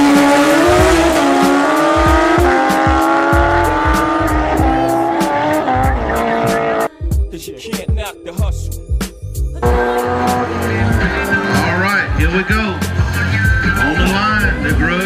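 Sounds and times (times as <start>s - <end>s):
motorcycles at full throttle: 0.0s - 6.9s, 9.6s - 15.0s
music with a steady beat: 0.0s - 15.0s.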